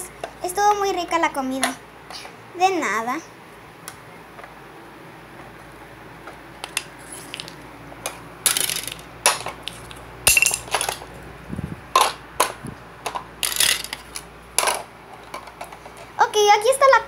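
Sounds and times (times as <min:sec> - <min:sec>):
toy pieces clattering in bin: 0:06.6 - 0:07.6, 0:08.4 - 0:11.1, 0:12.0 - 0:16.0.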